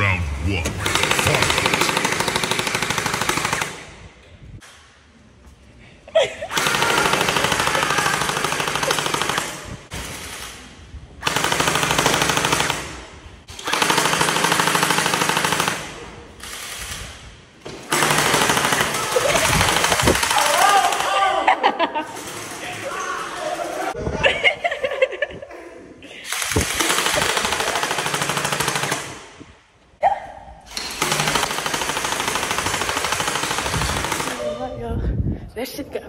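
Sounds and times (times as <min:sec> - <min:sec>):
gel blaster firing full auto: 0:00.7 - 0:03.9, 0:11.2 - 0:17.1.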